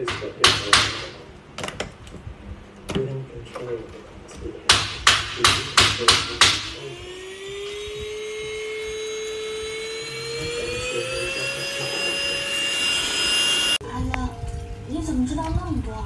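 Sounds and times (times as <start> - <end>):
sharp knocks: 0.0 - 1.9, 4.7 - 6.8
handheld vacuum motor whining: 6.8 - 13.8.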